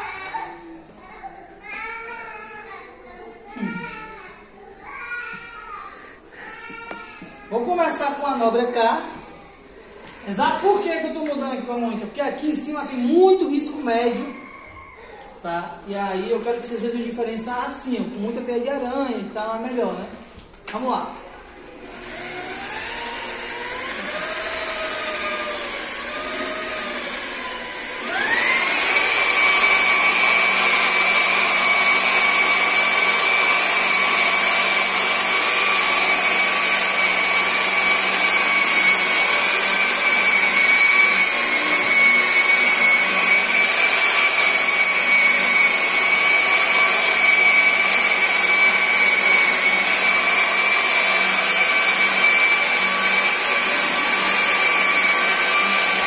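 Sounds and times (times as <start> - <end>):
electric polisher whining: 21.8 - 56.0.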